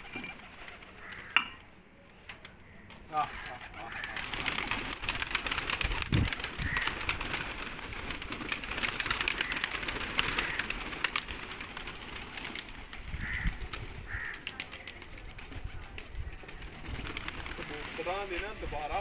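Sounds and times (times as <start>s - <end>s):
pigeon wings flapping: 0.0s - 1.3s, 3.2s - 19.0s
short bird calls: 0.0s - 1.8s.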